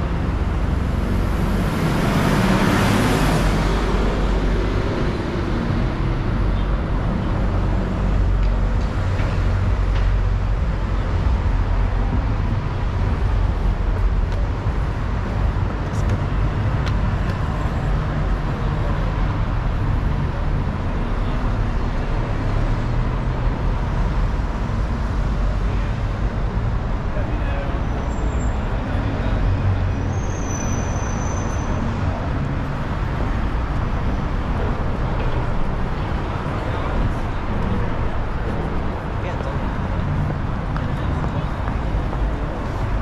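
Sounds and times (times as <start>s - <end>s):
heavy lorry passing: 0.0s - 43.0s
rumble of passing traffic: 0.0s - 43.0s.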